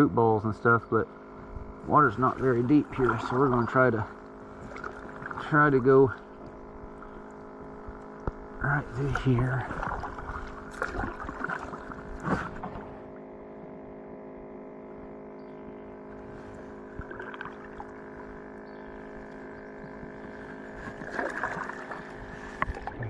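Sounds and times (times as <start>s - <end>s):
water noise: 0.0s - 13.7s, 15.9s - 23.0s
faint hum: 0.0s - 23.0s
paddling in water: 1.1s - 23.0s
paddle knocking kayak hull: 2.2s - 7.3s.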